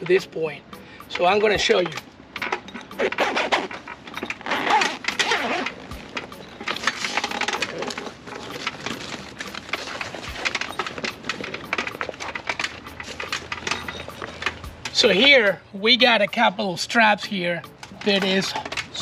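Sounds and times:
fabric rustling and scraping: 2.6s - 14.6s.

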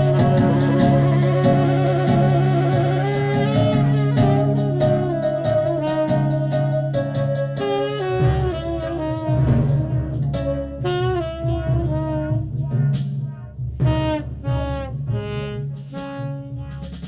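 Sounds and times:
electronic hand percussion: 0.0s - 15.2s
saxophone playing held notes: 0.0s - 17.0s.

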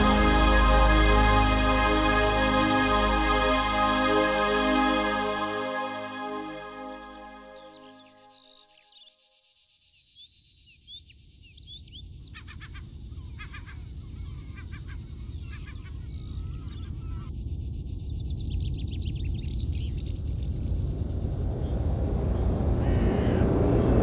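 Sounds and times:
low rushing rumble of aircraft: 17.3s - 24.0s.

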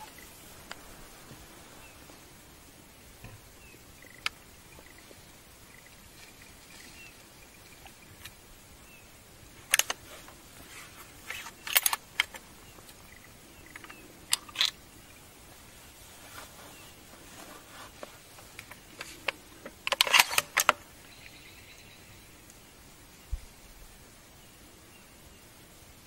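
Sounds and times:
faint high chirps: 3.5s - 8.2s, 21.0s - 23.4s.

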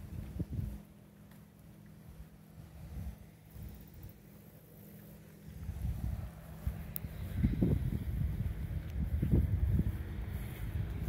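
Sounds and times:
wind buffeting microphone: 0.0s - 0.9s, 2.0s - 4.2s, 5.4s - 11.0s.

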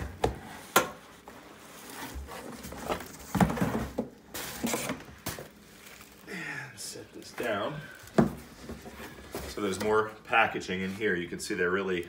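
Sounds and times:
cardboard scraping: 0.0s - 5.0s.

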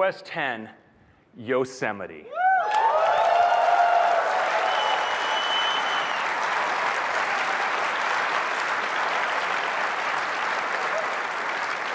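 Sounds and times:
audience applauding: 2.6s - 11.9s.

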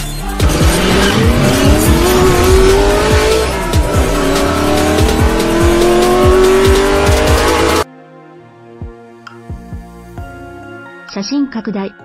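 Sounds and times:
hip-hop beat: 0.0s - 7.8s
car engine revving effect: 0.4s - 7.8s.

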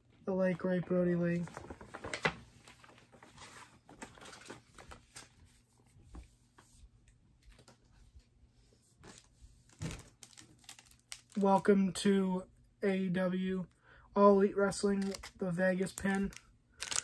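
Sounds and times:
packaging rustling: 1.4s - 5.4s, 9.7s - 11.6s, 14.9s - 17.0s.

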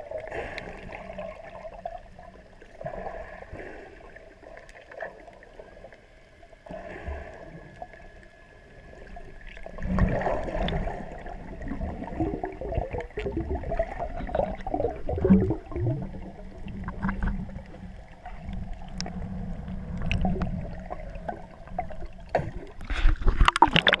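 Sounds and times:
low underwater rumble: 0.0s - 24.0s
underwater gurgling and bubbles: 0.0s - 24.0s
water splashing: 9.3s - 24.0s.

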